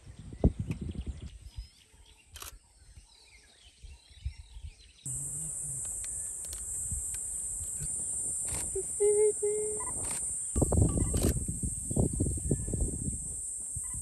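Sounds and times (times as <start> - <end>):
high insect drone: 5.1 - 14.0.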